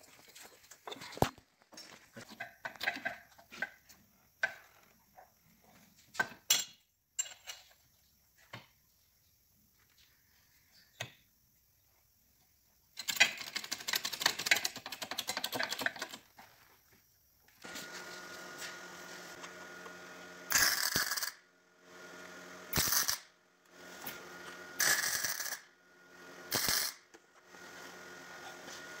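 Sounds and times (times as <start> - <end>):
electrical hum: 17.6 - 20.6
welding arc crackle: 20.0 - 21.4, 22.7 - 23.3, 24.8 - 25.7, 26.5 - 27.0.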